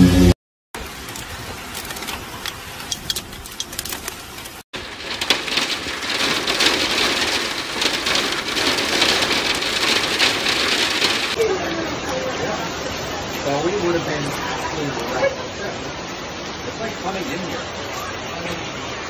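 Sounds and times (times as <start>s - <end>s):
hail ticking on window: 0.8s - 12.6s
hail and rain pelting glass: 0.8s - 17.3s
rain patter: 0.8s - 19.0s.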